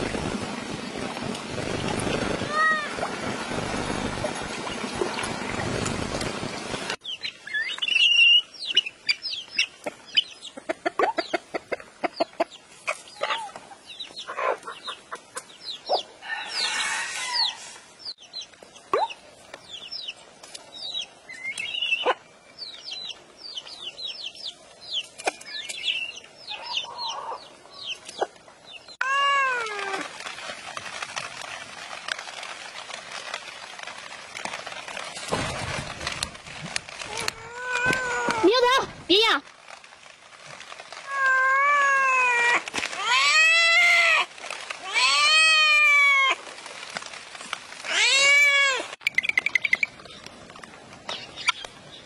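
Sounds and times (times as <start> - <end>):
rain pattering: 0.0 - 12.8, 27.5 - 52.0
ducklings and chicks peeping: 7.1 - 16.1, 26.4 - 28.8.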